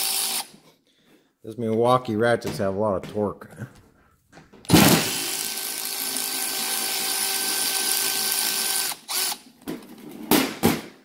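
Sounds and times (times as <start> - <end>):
electric ratchet motor whining: 0.0 - 0.5, 5.1 - 9.4.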